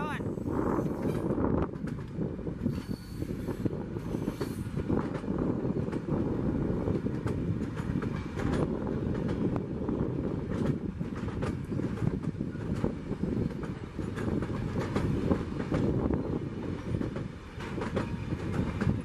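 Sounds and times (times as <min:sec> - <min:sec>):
train wheels rumbling on rails: 0:00.0 - 0:19.0
wheels clicking on track: 0:06.8 - 0:09.7, 0:10.4 - 0:19.0.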